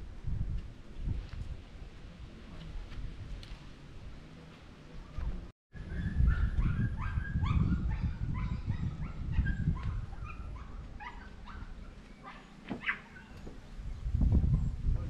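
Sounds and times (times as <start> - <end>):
animal yelping: 6.6 - 13.5.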